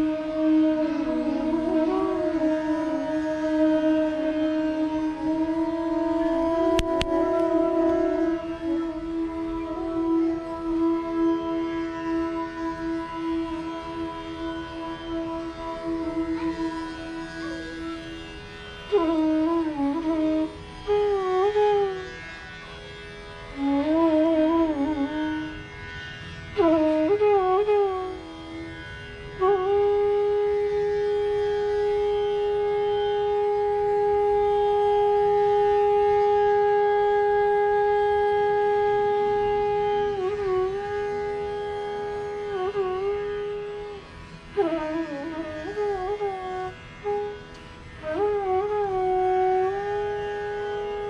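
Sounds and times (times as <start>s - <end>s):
bamboo flute playing: 0.0s - 51.0s.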